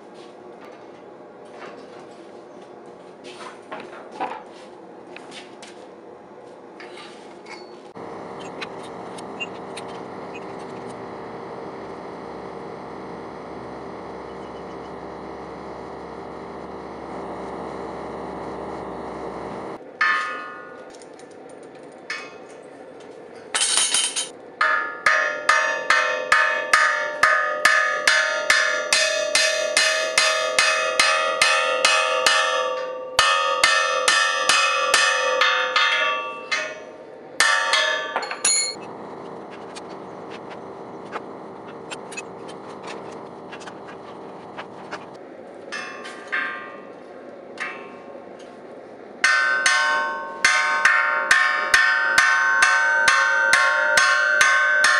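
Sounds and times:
gas forge burner rushing: 7.9 - 19.8, 38.7 - 45.9
hammer ringing on anvil: 8.0 - 19.4, 24.6 - 39.4, 49.2 - 54.9.

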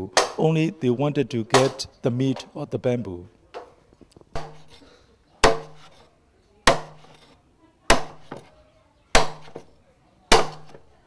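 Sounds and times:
knife chopping bamboo: 4.3 - 4.8, 5.4 - 6.0, 6.6 - 8.5, 9.2 - 9.7, 10.3 - 10.9.

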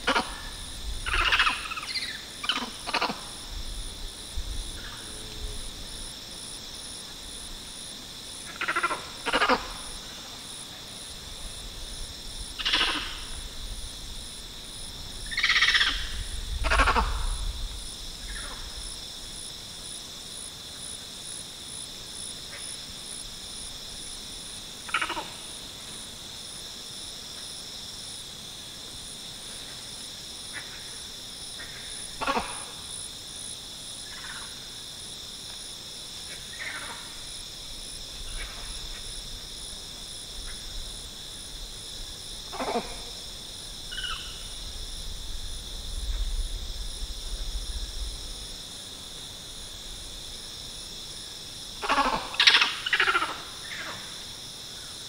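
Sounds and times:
cicadas droning: 0.0 - 55.0
monkeys giving short calls: 1.1 - 3.3, 12.6 - 13.2, 16.6 - 17.2, 32.2 - 32.6, 42.5 - 43.0, 51.8 - 53.4.

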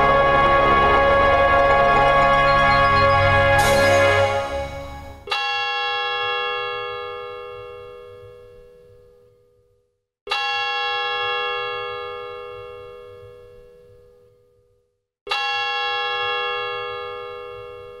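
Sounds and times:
bell-like chime: 1.6 - 5.9.

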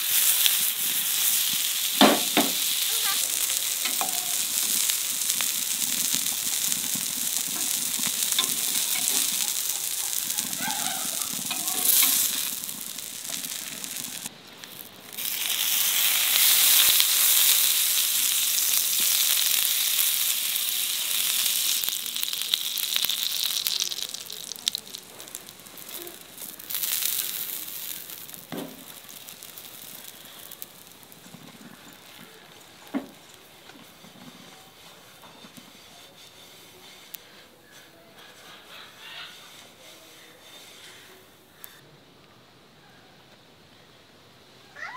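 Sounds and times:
fat hissing on hot pan: 0.0 - 41.8
patties sizzling on a griddle: 0.0 - 41.8
sharp knock: 2.0 - 2.6.

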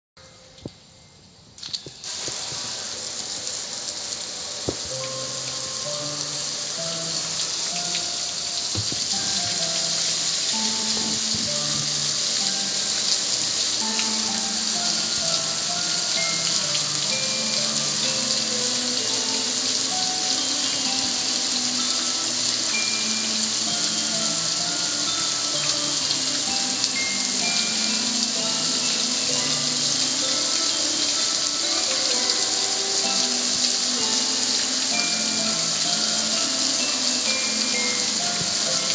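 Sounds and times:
music with simple melody: 0.2 - 38.9
hose spray hitting metal grill: 1.6 - 6.2, 6.8 - 18.6
hose spraying water on grill: 1.6 - 38.9.

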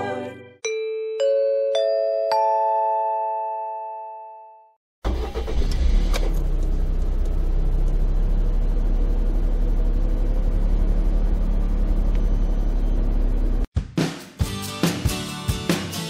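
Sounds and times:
car engine rumble in cabin: 5.1 - 13.7.

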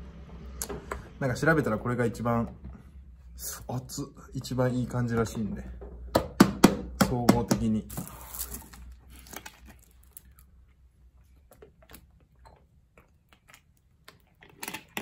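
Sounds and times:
plastic bottle crinkling: 7.9 - 10.5.

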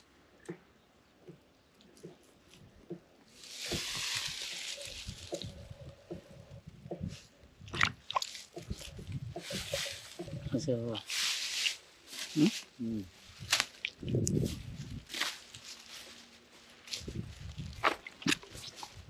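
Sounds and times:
mud squelching and sloshing: 3.4 - 5.7, 7.7 - 10.0, 17.7 - 19.0.

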